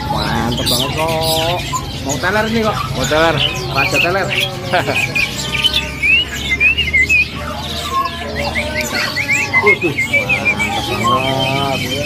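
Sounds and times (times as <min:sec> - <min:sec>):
bird chirping rising runs: 0:00.0 - 0:12.0.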